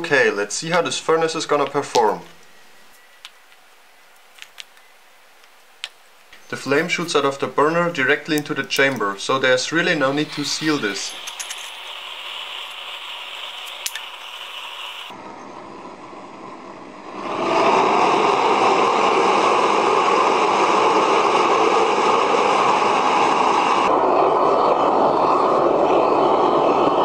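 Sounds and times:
gas torch flame hissing: 0:06.4 - 0:15.2, 0:15.8 - 0:27.0.

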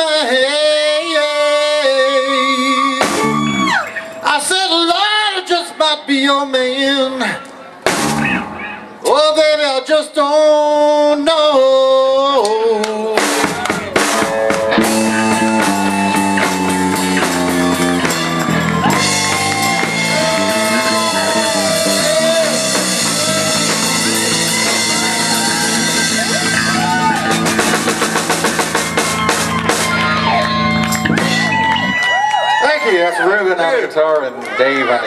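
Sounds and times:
blues-rock band playing: 0:03.0 - 0:04.4, 0:07.8 - 0:09.0, 0:13.0 - 0:32.6.

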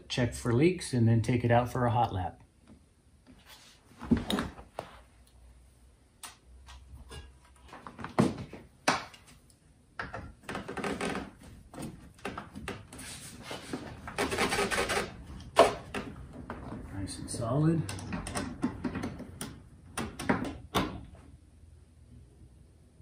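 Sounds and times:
rubber hose rubbing and scraping: 0:10.4 - 0:17.6.

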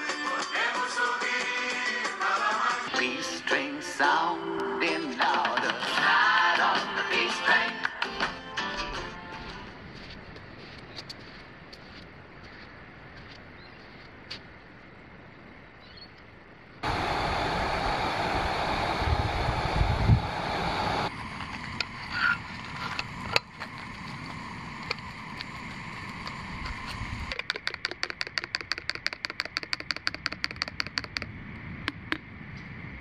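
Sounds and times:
faint outdoor background: 0:00.0 - 0:33.0
gas stove burner hissing: 0:16.8 - 0:31.2.

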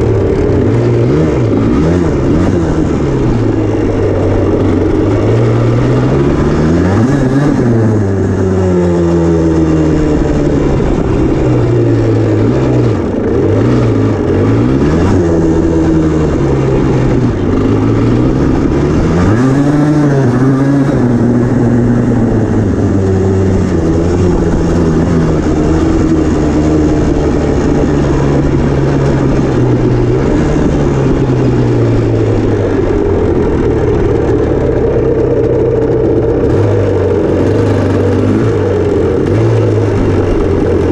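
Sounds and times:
two-stroke engine revving: 0:00.0 - 0:40.9.

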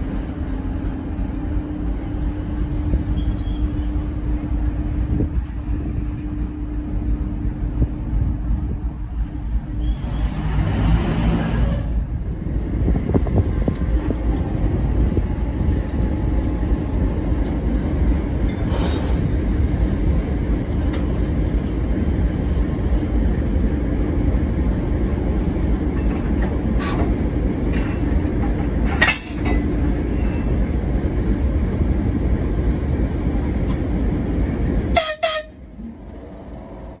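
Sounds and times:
train heavy rumble: 0:00.0 - 0:37.0
train horn: 0:34.9 - 0:35.6.

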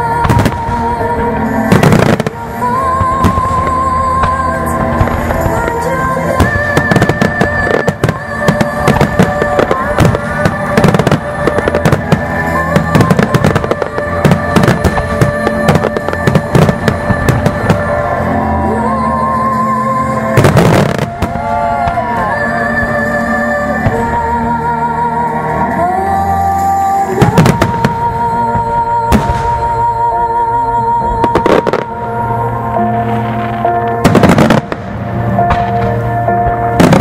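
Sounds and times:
firework bursts and crackle: 0:00.0 - 0:18.8, 0:20.1 - 0:24.4, 0:32.8 - 0:37.0
music over loudspeakers: 0:00.0 - 0:37.0.

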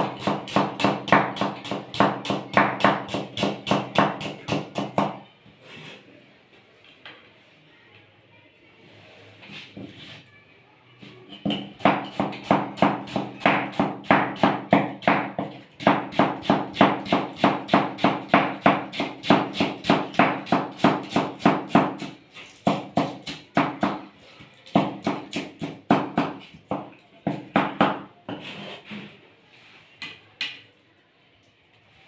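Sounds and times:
knife chopping cabbage on board: 0:00.0 - 0:05.2, 0:11.5 - 0:24.0, 0:24.7 - 0:28.6.

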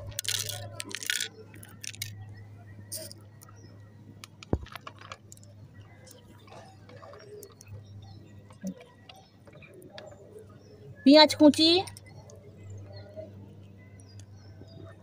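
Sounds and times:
light crackles of fried snacks: 0:00.0 - 0:02.2.

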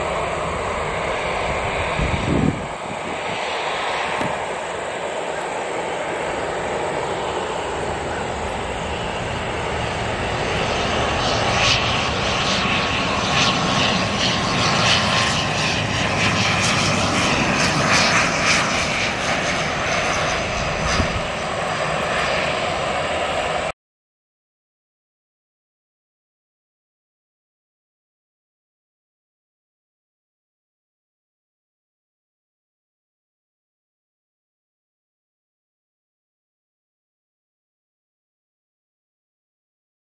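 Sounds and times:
turboprop airliner drone: 0:00.0 - 0:23.8.

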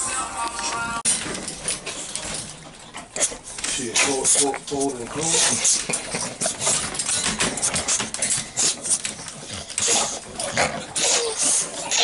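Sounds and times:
paws scraping crate wire: 0:00.6 - 0:12.0
dogs whining: 0:05.2 - 0:12.0.

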